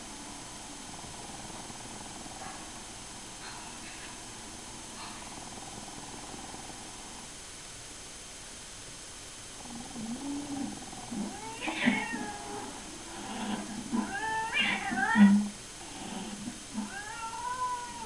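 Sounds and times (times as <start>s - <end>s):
cats yowling through speakers: 10.3s - 15.5s, 16.8s - 18.0s.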